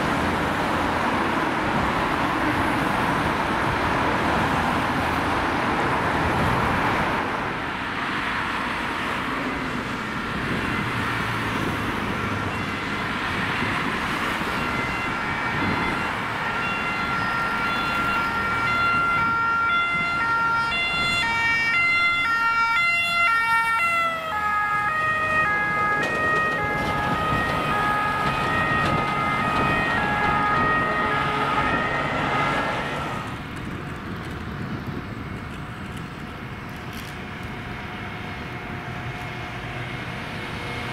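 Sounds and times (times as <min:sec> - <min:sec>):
road traffic: 0:00.0 - 0:40.9
two-tone ambulance siren: 0:10.0 - 0:33.6.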